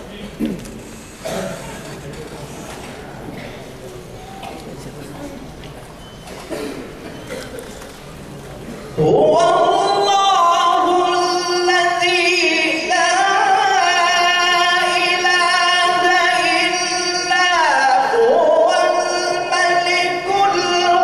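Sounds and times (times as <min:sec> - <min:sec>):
man chanting into a microphone: 0:09.0 - 0:21.0.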